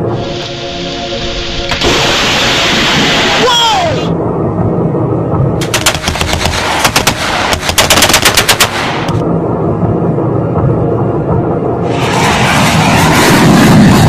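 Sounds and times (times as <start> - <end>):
low steady rumble: 4.1 - 5.8, 9.1 - 14.0
rapid gunfire bursts: 5.6 - 9.1.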